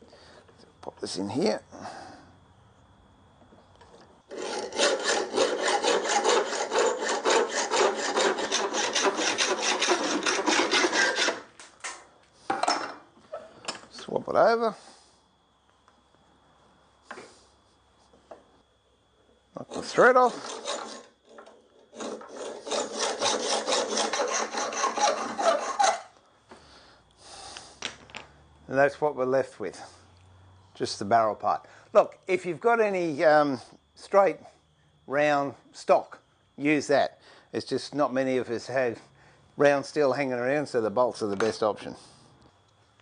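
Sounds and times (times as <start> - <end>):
hacksaw cutting metal: 4.3 - 11.5, 19.7 - 26.1.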